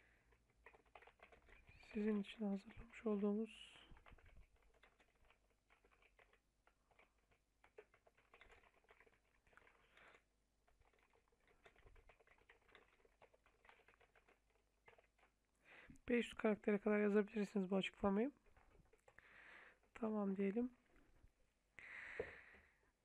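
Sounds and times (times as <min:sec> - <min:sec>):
computer keyboard typing: 0:00.3 - 0:15.3.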